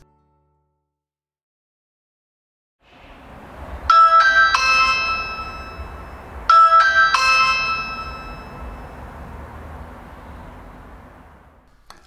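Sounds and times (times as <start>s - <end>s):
three-note electronic doorbell chime: 3.9s - 9.0s.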